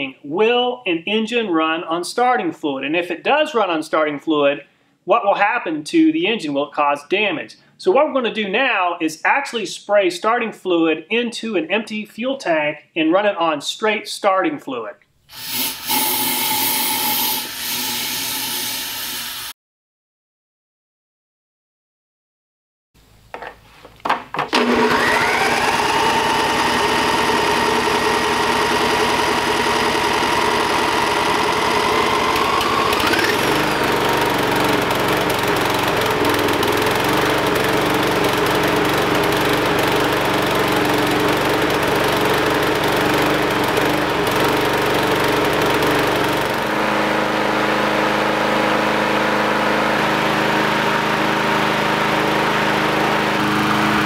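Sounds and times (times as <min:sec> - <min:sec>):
mower engine running: 0:24.5 - 0:54.0
pull-start cranking: 0:31.0 - 0:46.5.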